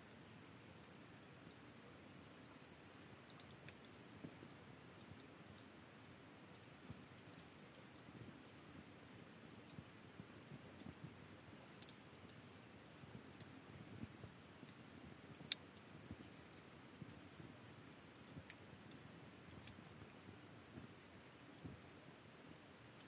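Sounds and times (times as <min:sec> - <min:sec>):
campfire pops and snaps: 0:02.4 - 0:04.0, 0:06.8 - 0:12.4, 0:13.0 - 0:20.9.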